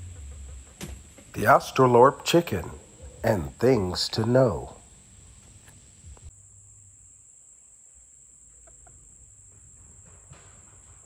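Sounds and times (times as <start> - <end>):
hens clucking: 0.0 - 5.9.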